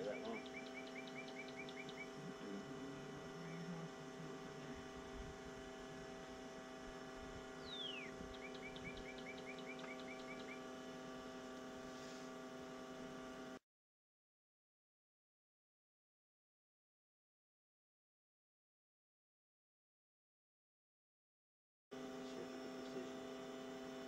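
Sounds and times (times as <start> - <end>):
songbird singing: 0.0 - 6.3, 7.1 - 10.7
steady hum of held tones: 0.0 - 13.6, 22.0 - 24.0.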